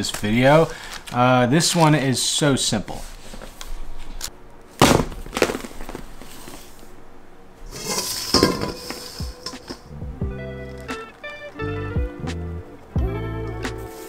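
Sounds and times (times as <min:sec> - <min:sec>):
dishes clattering: 0:07.7 - 0:09.9
dishes knocking and clinking: 0:07.8 - 0:09.9.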